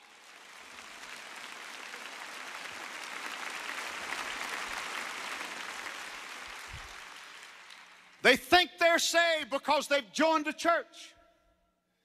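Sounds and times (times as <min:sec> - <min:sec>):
large audience applauding: 0:00.0 - 0:08.4.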